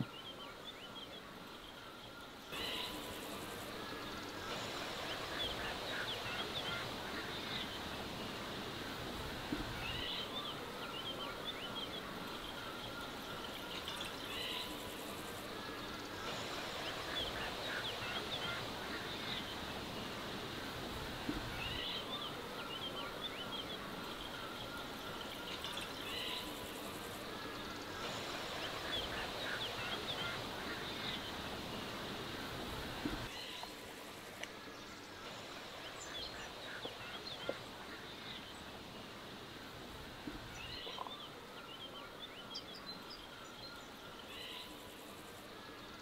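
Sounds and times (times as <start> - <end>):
steady background hiss: 0.0 - 46.0
small birds chirping: 40.2 - 46.0.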